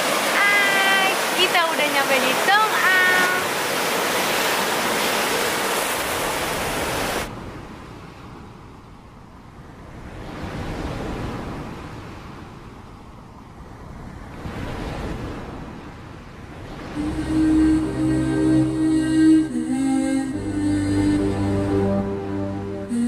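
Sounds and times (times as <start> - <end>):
waves breaking on pebble shore: 0.0 - 7.3.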